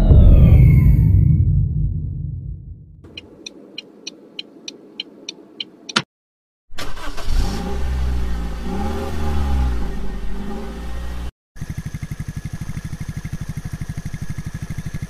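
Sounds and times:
car engine revving: 0:06.8 - 0:11.3.

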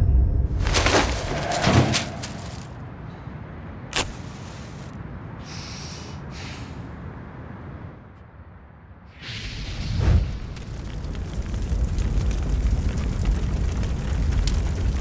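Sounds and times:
low rumbling drone: 0:00.0 - 0:02.2
match struck and flaring: 0:03.9 - 0:04.9
rush of fire: 0:09.1 - 0:15.0.

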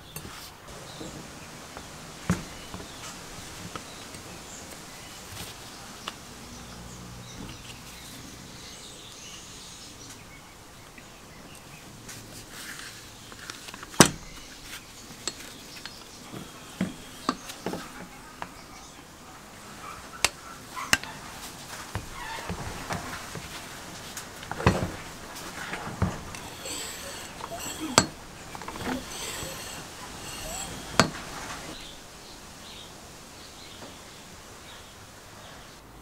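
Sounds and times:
metal parts clicking and knocking: 0:24.4 - 0:31.8.

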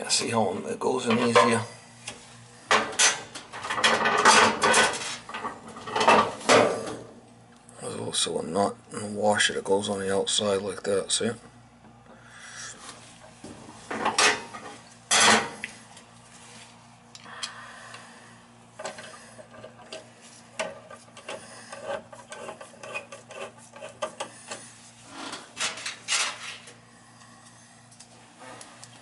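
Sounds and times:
screwdriver scraping on screw: 0:20.9 - 0:24.6.

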